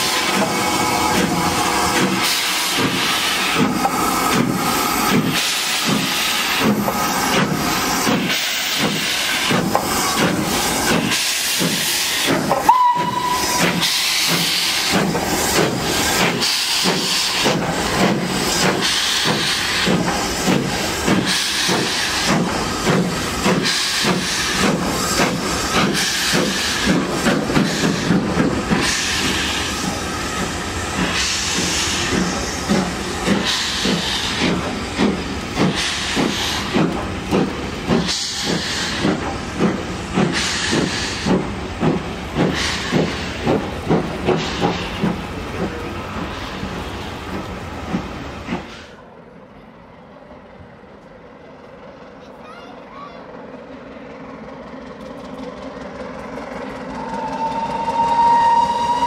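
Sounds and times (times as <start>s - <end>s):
steam hissing: 0.0s - 49.0s, 55.8s - 59.0s
steam locomotive exhaust beats: 0.0s - 59.0s
steam whistle blast: 12.6s - 14.2s, 57.0s - 59.0s.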